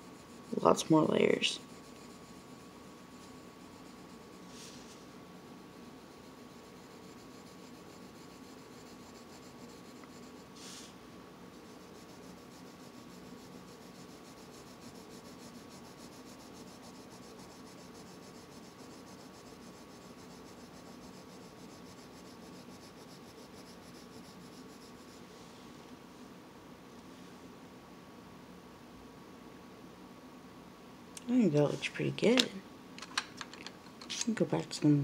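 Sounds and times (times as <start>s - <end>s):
pencil scratching on paper: 0.0s - 10.9s, 11.5s - 25.3s
faint steady hum: 0.0s - 35.0s.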